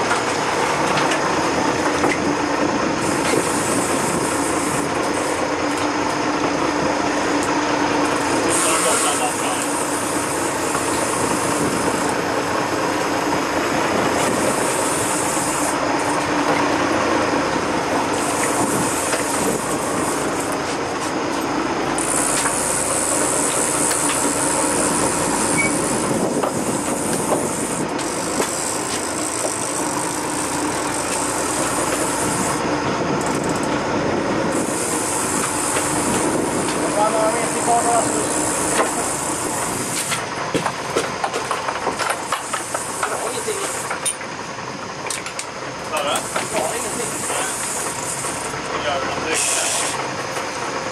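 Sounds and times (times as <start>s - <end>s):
boat engine drone: 0.0s - 50.9s
wind noise: 10.5s - 12.3s, 17.6s - 20.4s, 24.8s - 28.5s, 32.0s - 37.2s.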